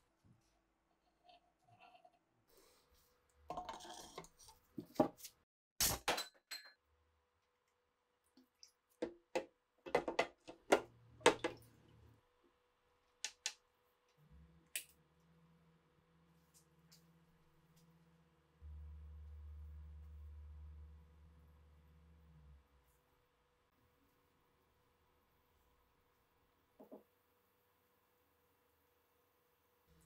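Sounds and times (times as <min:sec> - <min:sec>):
low steady hum: 0:14.1 - 0:26.7.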